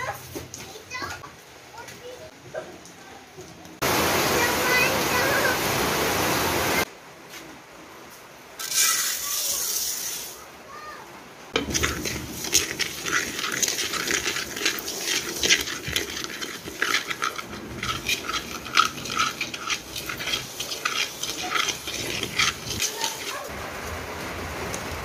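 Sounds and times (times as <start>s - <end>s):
spatula scraping rice in wok: 8.6s - 10.3s, 11.6s - 23.5s.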